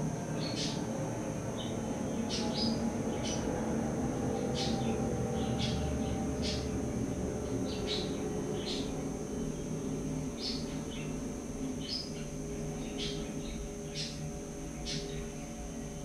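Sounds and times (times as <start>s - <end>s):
small bird chirping: 7.7s - 9.7s, 10.3s - 15.4s.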